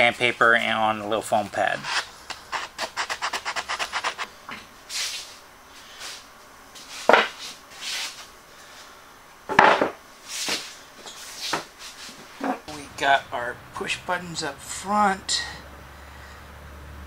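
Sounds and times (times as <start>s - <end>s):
sandpaper rubbing wood: 1.8s - 4.3s
stools set down on floor: 7.0s - 7.4s, 9.5s - 11.7s.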